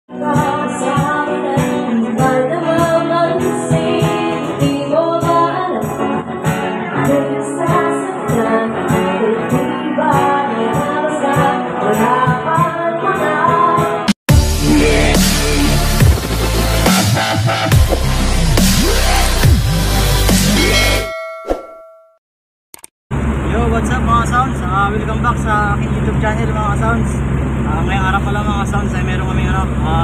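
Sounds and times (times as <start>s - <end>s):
person singing: 0.1s - 6.2s, 6.8s - 16.1s
acoustic guitar: 0.1s - 17.0s.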